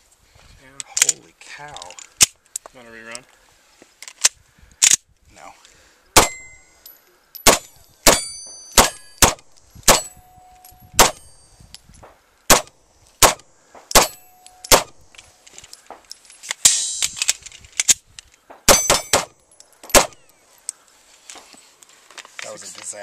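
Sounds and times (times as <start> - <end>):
pistol shots: 6.2 - 6.6, 7.4 - 10.2, 11.0 - 11.4, 12.5 - 15.1, 18.7 - 20.2
steel plate targets ringing: 6.2 - 9.3, 9.9 - 11.6, 14.0 - 15.0, 16.6 - 17.1, 18.7 - 20.2.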